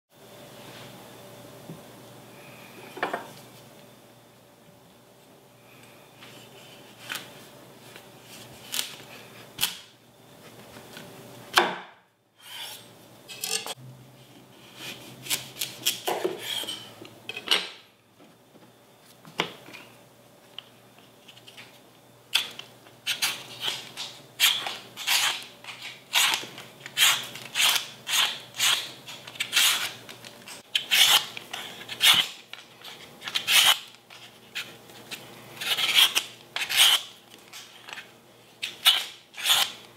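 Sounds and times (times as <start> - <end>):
vegetable peeler scraping: 12.4 - 13.8, 14.6 - 16.9, 22.4 - 39.9.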